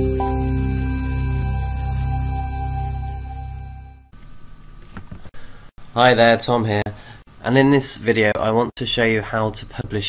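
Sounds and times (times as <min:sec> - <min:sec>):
soft intro music: 0:00.0 - 0:04.1.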